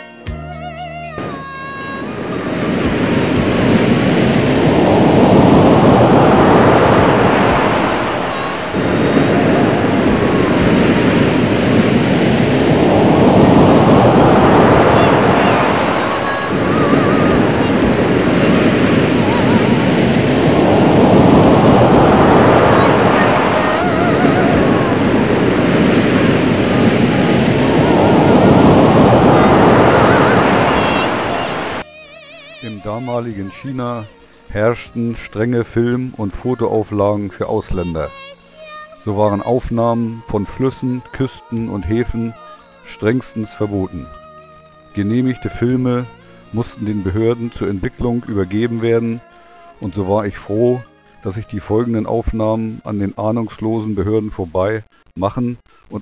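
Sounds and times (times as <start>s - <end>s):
waves rushing and breaking: 1.2s - 31.9s, 39.1s - 44.1s, 45.0s - 49.2s.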